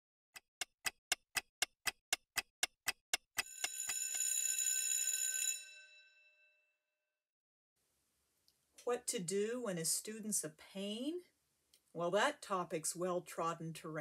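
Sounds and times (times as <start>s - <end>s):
clock ticking: 0.4s - 4.0s
bell ringing: 3.4s - 6.6s.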